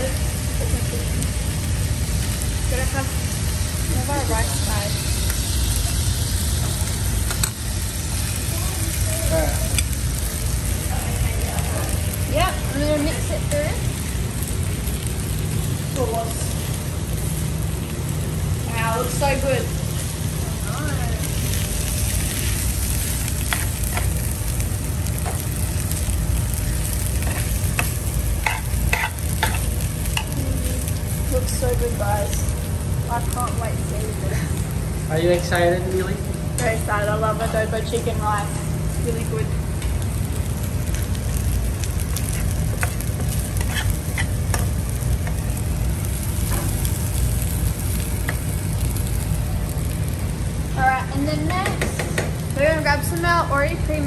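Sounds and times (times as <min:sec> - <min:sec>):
food sizzling in a frying pan: 0:00.0 - 0:54.0
metal spoon scraping a pan: 0:28.4 - 0:29.7, 0:43.5 - 0:44.6.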